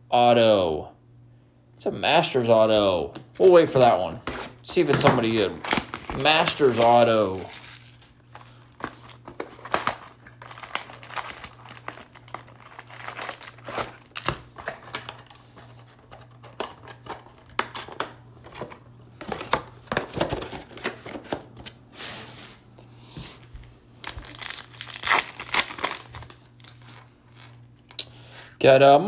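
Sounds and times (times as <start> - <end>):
card wrappers crinkling: 3.4 - 22.6, 24.0 - 27.7.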